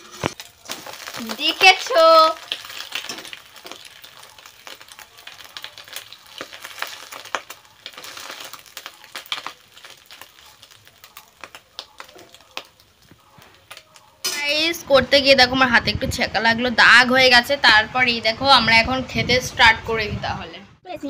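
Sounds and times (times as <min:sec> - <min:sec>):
metal spatula scraping pan: 0:00.0 - 0:00.4
egg sizzling in a wok: 0:00.0 - 0:14.7.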